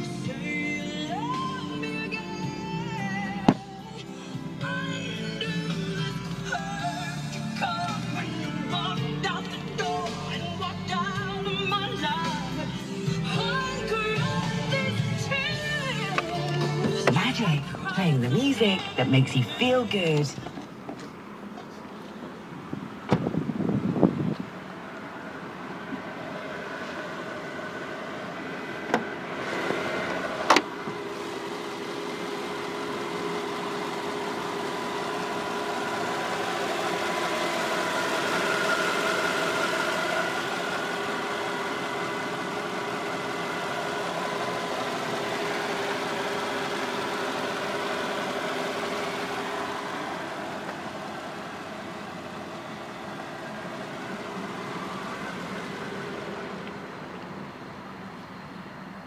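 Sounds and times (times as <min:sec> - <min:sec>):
car engine idling with whine: 0:00.0 - 0:59.0.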